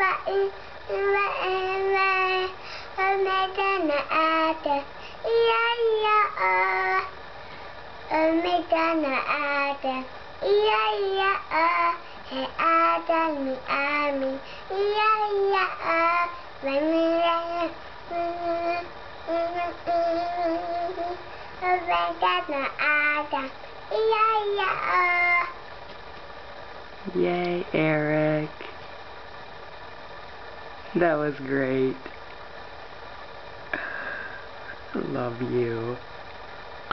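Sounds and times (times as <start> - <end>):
young child singing: 0.0 - 7.2, 8.1 - 25.6.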